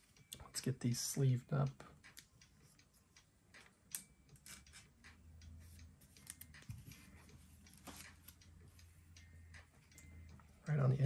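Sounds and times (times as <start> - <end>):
trading cards clicking and rustling: 3.6 - 5.2, 5.8 - 8.8.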